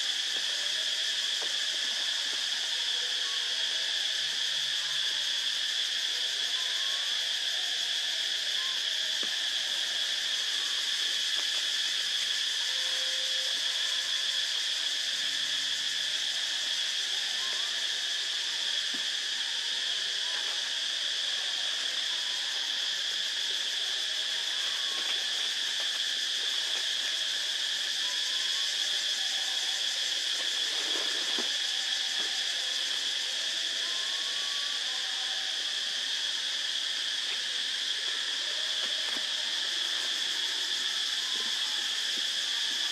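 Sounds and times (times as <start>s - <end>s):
insects droning: 0.0s - 42.9s.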